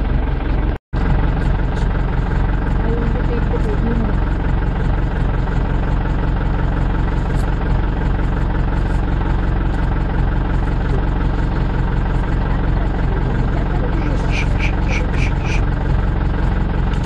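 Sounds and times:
vehicle engine idling: 0.0s - 17.0s.

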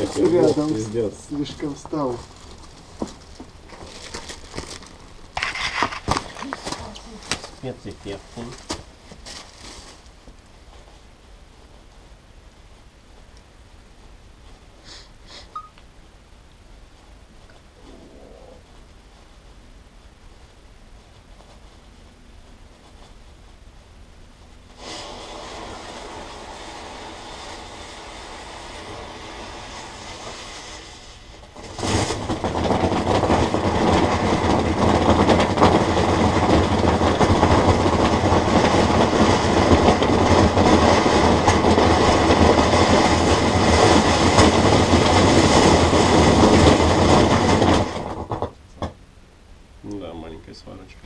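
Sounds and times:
firework fountain hissing: 0.0s - 10.4s, 13.6s - 15.7s, 24.5s - 48.9s.

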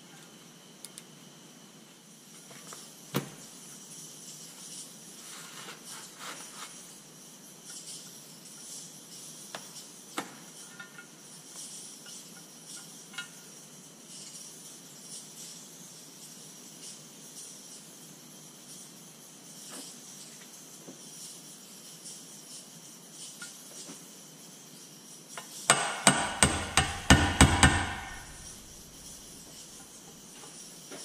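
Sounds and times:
metal knocks and clicks: 25.7s - 28.7s.

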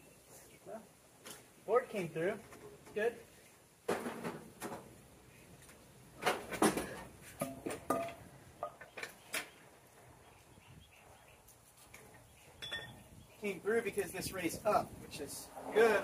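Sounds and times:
knocks and metal clanks: 3.9s - 4.9s, 6.2s - 9.1s.

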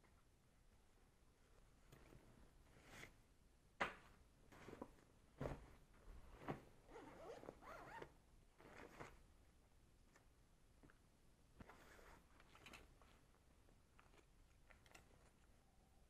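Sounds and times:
nylon fabric rustling: 4.5s - 9.2s
zippers being pulled: 6.9s - 9.2s.

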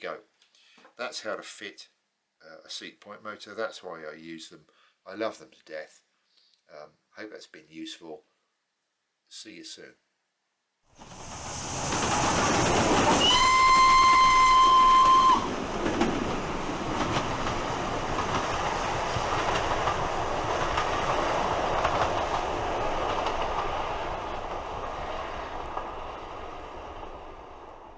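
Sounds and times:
wheels clacking over rail joints: 11.0s - 27.4s
train rumble: 11.0s - 27.9s
train whistle: 13.0s - 15.5s.

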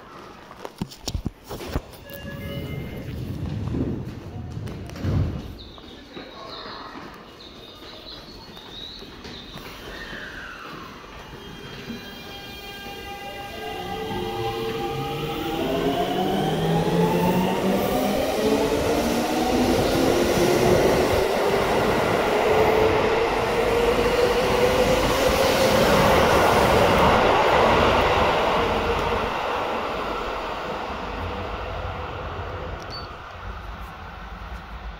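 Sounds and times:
train wheel rolling noise: 2.2s - 6.1s.

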